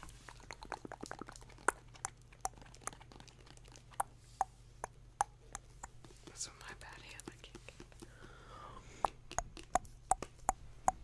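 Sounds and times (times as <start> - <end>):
sharp taps and clicks: 9.0 - 11.0.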